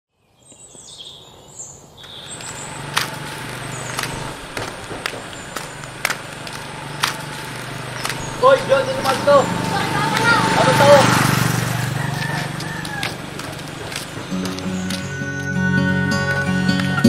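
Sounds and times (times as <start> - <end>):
sharp clicks: 2.0 - 8.3.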